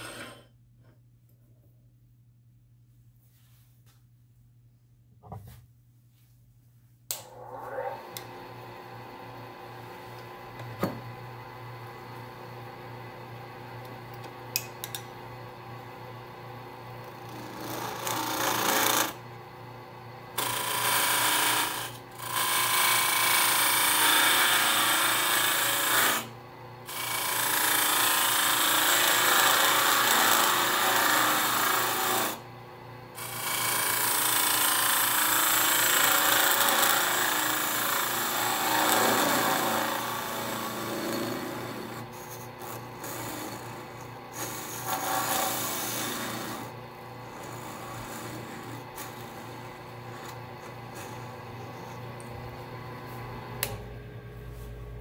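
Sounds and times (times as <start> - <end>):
lathe tool scraping wood: 0.0 - 0.4, 17.0 - 19.2, 20.4 - 26.3, 26.9 - 32.4, 33.2 - 52.2
lathe motor hum: 15.1 - 19.8, 20.4 - 26.3, 26.9 - 32.4, 33.2 - 53.9.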